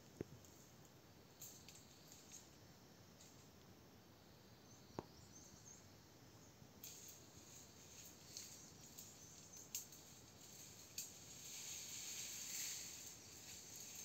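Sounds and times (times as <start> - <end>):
leaves rustling: 6.8 - 14.0.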